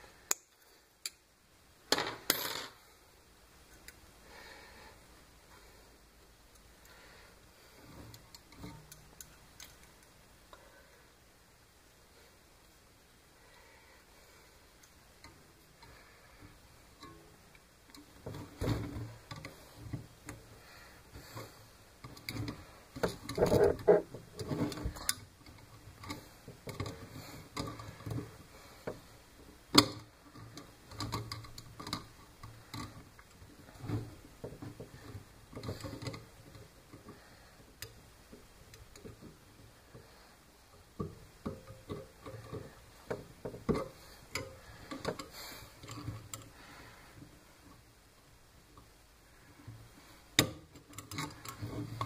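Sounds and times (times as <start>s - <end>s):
small parts and tools clicking: 0.3s - 1.2s, 7.8s - 10.2s, 50.4s - 52.0s.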